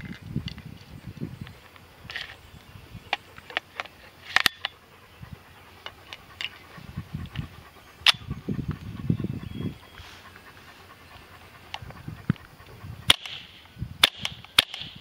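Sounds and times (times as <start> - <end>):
airsoft gun shots: 13.1 - 15.0.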